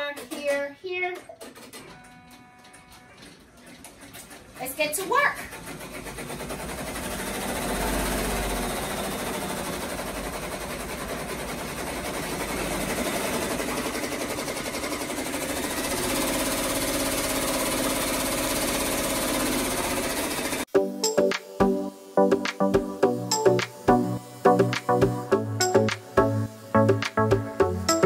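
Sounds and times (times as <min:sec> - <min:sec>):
embroidery machines stitching: 0:01.3 - 0:20.7.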